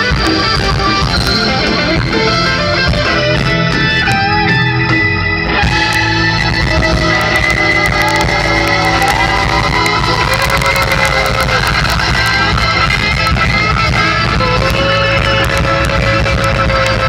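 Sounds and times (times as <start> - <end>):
guitar sliding held notes: 0.0 - 17.0
live band playing amplified music: 0.0 - 17.0.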